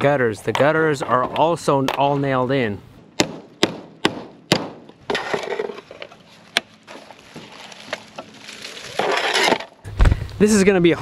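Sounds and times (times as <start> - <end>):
gutter metal scraping and rattling: 5.0 - 9.9.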